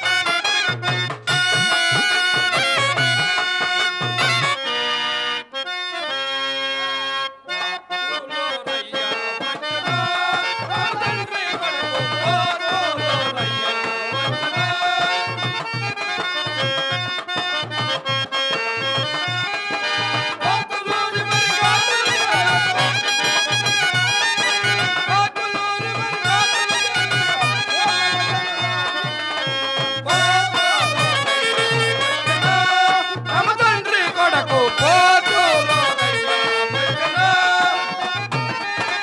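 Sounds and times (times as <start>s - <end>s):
hand-drum beats: 0.0s - 4.6s, 18.6s - 39.0s
reedy wind instrument melody: 0.0s - 7.9s, 15.2s - 39.0s.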